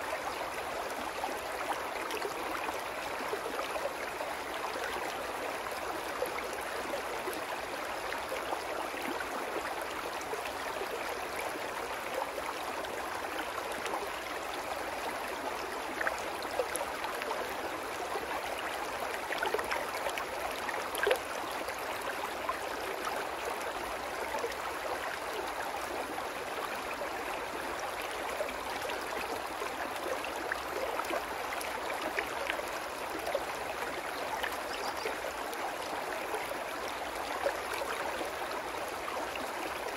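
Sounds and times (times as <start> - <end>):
brook babbling over stones: 0.0 - 39.9.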